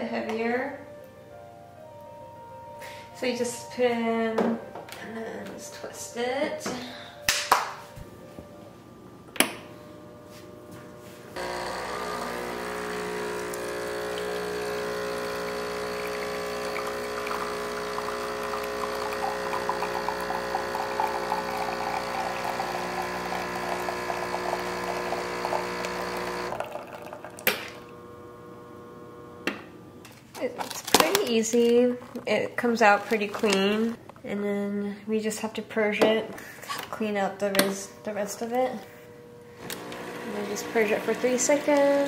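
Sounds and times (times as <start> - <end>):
espresso machine pump humming: 9.4 - 29.9, 39.2 - 42.0
espresso trickling into glass cups: 11.4 - 29.0, 39.6 - 42.0.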